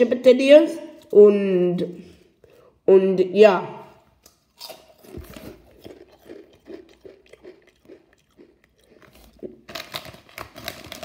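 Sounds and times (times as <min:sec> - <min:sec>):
chewing crunchy crisps: 0:04.3 - 0:11.0.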